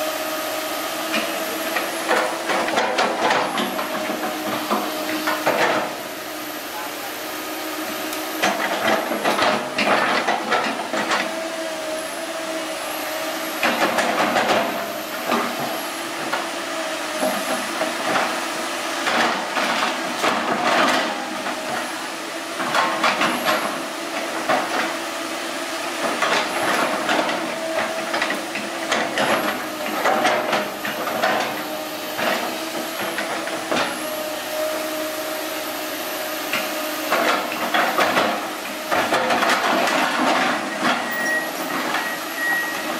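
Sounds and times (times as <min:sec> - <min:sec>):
excavator engine and hydraulics whine: 0:00.0 - 0:42.9
steel bucket clanking and scraping: 0:37.1 - 0:42.9.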